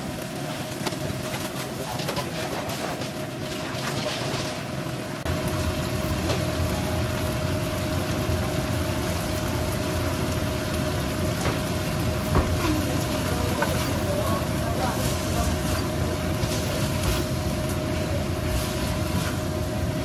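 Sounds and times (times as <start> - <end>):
food sizzling in a wok: 5.3 - 20.0.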